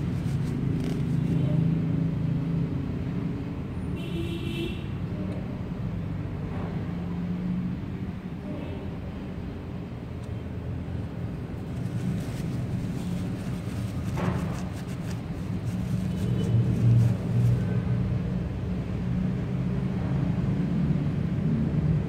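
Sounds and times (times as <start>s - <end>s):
paper towel rustling: 0.0s - 1.6s, 11.6s - 17.8s.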